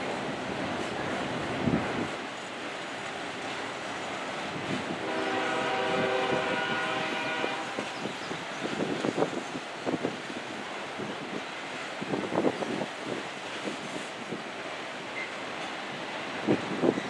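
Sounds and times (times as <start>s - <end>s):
freight train rolling past: 0.0s - 17.0s
wind on microphone: 4.5s - 14.4s
locomotive horn chord: 4.9s - 7.9s.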